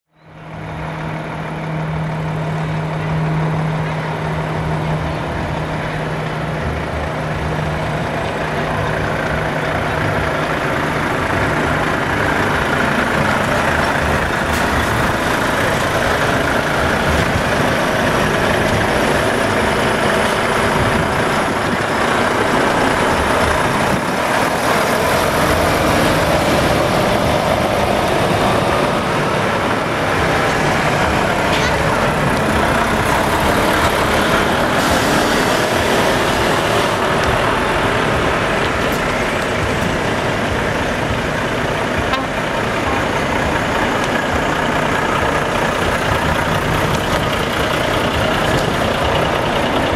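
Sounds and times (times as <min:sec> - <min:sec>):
heavy diesel truck engines: 0:00.1 - 0:49.9.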